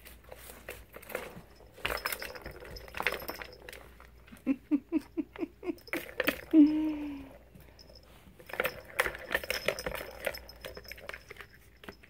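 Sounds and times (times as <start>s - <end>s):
plastic balls rattling in toy tracks: 0.9s - 4.1s, 8.4s - 11.5s.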